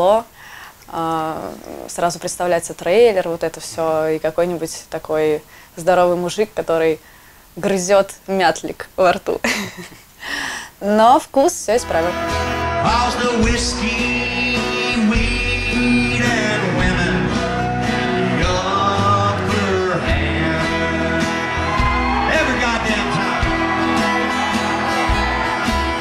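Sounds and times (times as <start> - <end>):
man singing: 11.8 - 25.0
acoustic guitar: 11.8 - 26.0
upright bass: 11.8 - 26.0.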